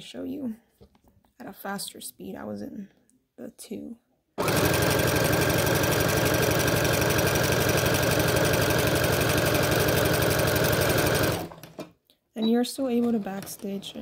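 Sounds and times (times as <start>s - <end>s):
electric sewing machine running: 4.4s - 11.9s, 12.9s - 14.0s.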